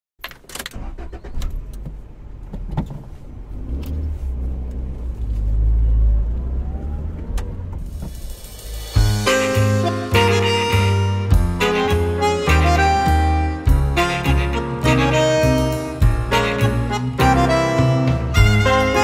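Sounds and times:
cars passing: 2.2 - 9.8.

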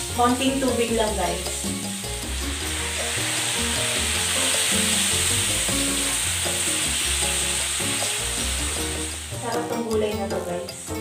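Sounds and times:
food sizzling in a pan: 0.0 - 11.0
light background music: 0.0 - 11.0
water splashing into pan: 1.5 - 10.2.

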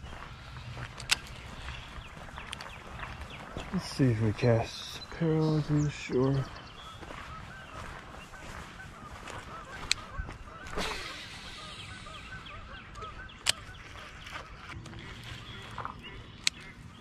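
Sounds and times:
geese honking: 0.1 - 17.0
sharp clicks: 0.9 - 1.4, 2.4 - 2.8, 9.8 - 10.1, 12.9 - 13.8, 16.4 - 16.7.

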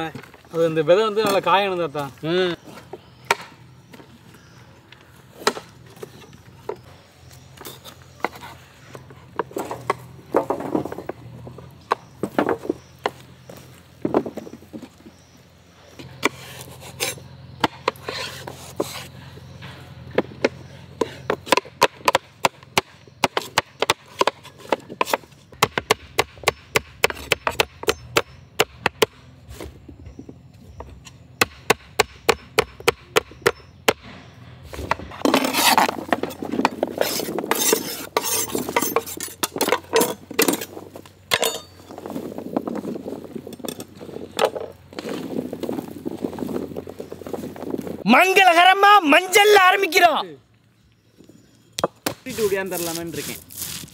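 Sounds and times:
knife chopping on wooden board: 20.2 - 29.7, 31.4 - 34.2.

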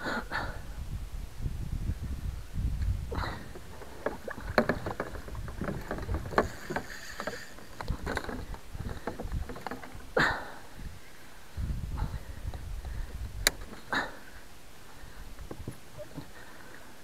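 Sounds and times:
water sloshing: 3.1 - 10.7
gear clattering on kayak: 3.1 - 10.9, 12.2 - 14.1, 15.2 - 17.0.

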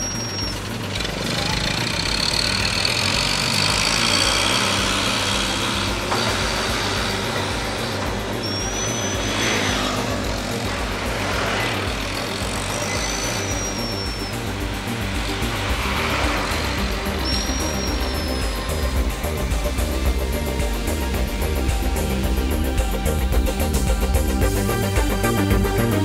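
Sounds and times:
truck engine idling: 0.0 - 26.0
thin high whistling tones: 7.2 - 21.2.

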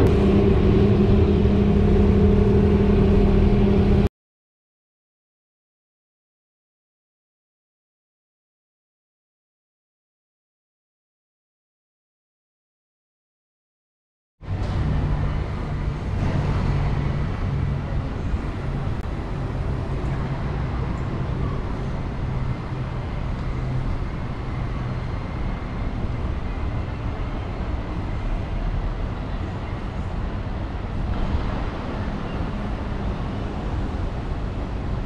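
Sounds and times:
road traffic rumble: 0.0 - 4.1, 14.4 - 35.0.

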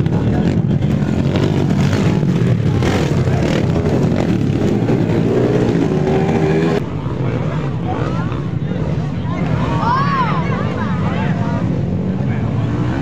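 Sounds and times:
dirt bike engines revving: 0.0 - 13.0.

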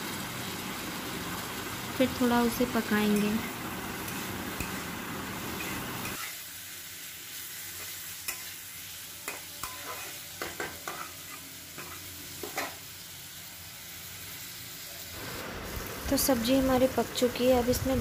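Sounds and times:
vegetables sizzling in oil: 0.0 - 18.0
spatula scraping a pan: 3.4 - 4.9, 5.5 - 6.4, 9.2 - 12.8.

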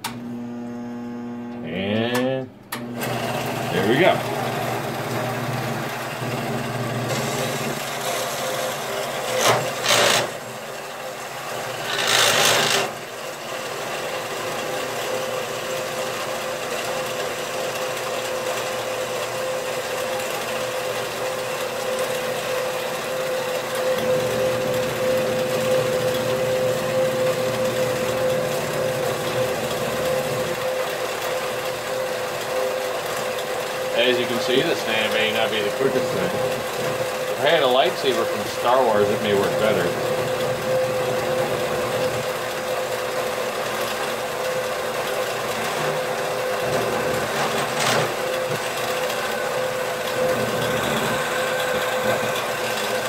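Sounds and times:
bandsaw cutting metal bar: 7.0 - 10.5, 11.6 - 15.4, 21.3 - 30.9, 33.2 - 53.0
steady whine: 23.7 - 30.8, 33.9 - 42.6.

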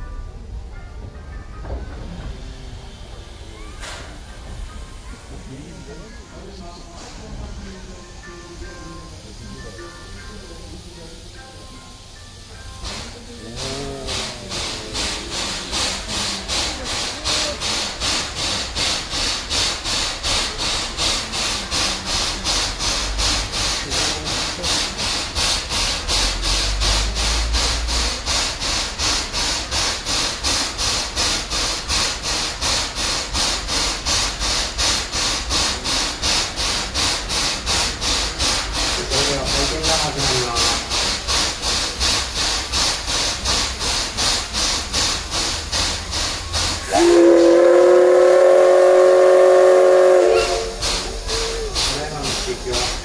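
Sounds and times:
rhythmic scraping hiss: 0.0 - 53.0
steam whistle blowing: 46.7 - 51.8.

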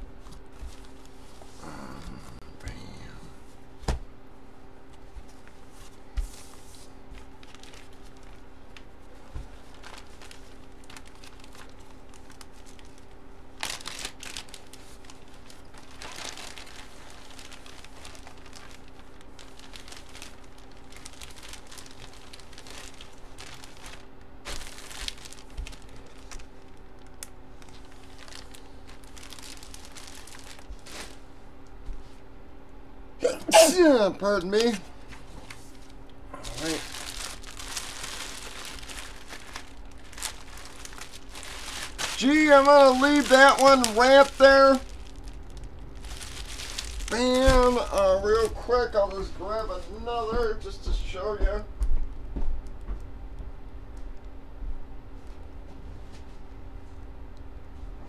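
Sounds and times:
plastic wrapping crinkling: 0.2 - 1.5, 6.6 - 31.4, 34.2 - 50.0
low hum: 13.6 - 58.0.

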